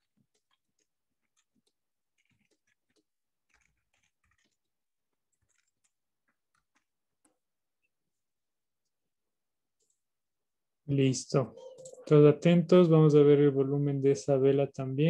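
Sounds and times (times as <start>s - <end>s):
faint clicks and taps: 0.0s - 8.2s.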